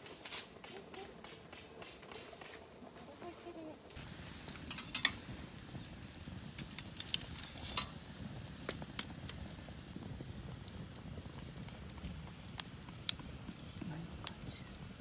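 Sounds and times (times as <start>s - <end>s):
firewood crackling and popping: 0.0s - 15.0s
metal tongs clicking on logs: 4.6s - 5.2s.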